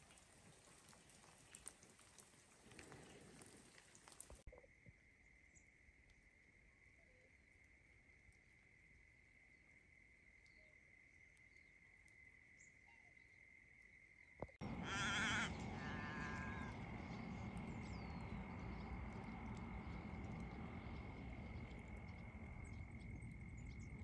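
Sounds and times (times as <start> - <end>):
swans calling: 14.6 - 20.3.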